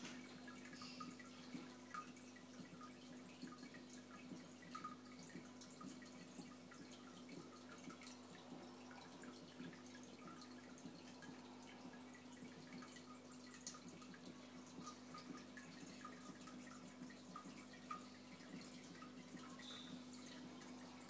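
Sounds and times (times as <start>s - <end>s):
aquarium pump hum: 0.0s - 21.0s
water dripping and bubbling: 0.0s - 21.0s.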